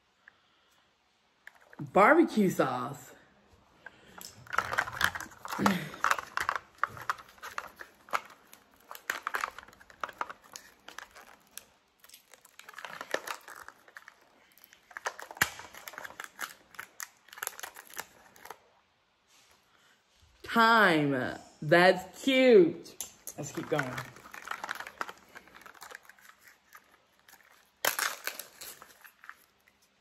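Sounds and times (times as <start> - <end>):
plastic wrapper crinkling: 1.4 - 1.9, 3.8 - 19.6, 23.0 - 30.0.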